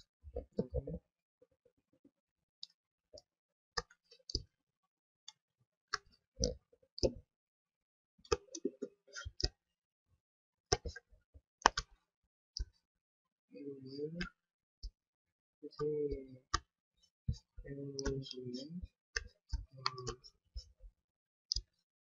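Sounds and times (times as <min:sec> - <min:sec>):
computer mouse clicking: 0:18.0 - 0:18.3.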